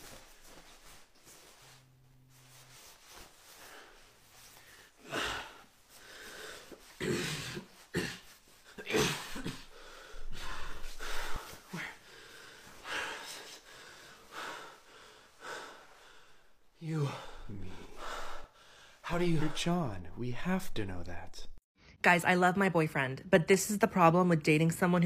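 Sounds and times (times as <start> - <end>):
man gasping and wheezing: 3.5 - 19.6.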